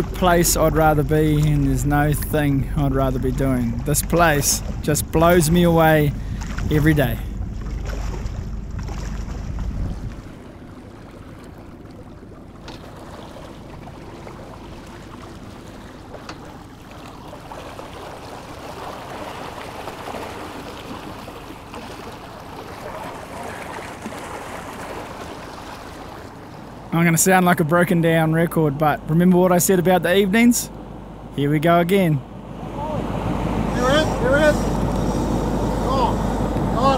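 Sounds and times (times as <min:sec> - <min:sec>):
low rumble: 0:00.0 - 0:16.1
water splashing against boat hull: 0:00.0 - 0:26.9.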